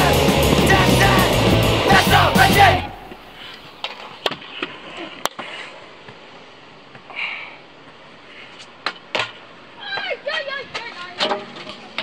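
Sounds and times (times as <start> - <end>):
scooter clacks on concrete: 8.8 - 12.0.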